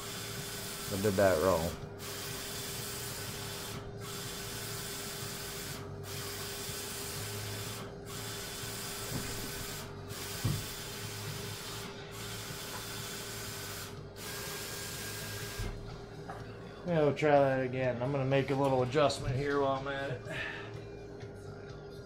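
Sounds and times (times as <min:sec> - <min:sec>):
inkjet printer carriage whirring: 0:00.0 - 0:16.4
thump: 0:10.4 - 0:10.7.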